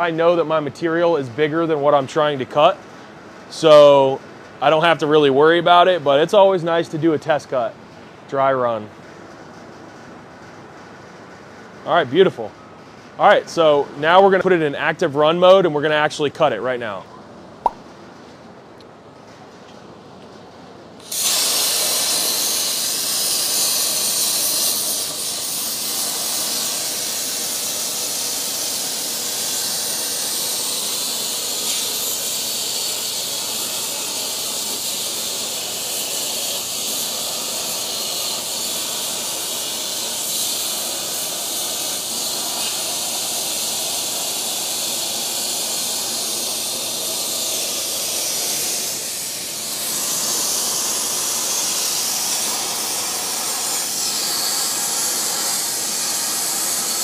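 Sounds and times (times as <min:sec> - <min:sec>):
plasma arc hissing: 0:21.0 - 0:57.0.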